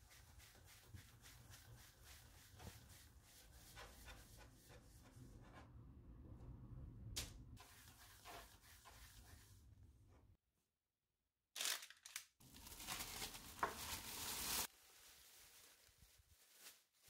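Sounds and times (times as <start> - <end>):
dough rubbing on countertop: 0.0 - 5.6, 7.6 - 9.7
plastic bag rustling: 11.6 - 17.0.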